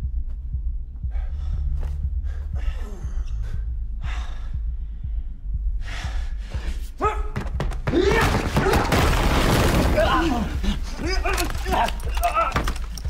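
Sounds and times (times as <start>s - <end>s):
low rumble: 0.0s - 6.8s
man panting and gasping: 1.0s - 7.1s.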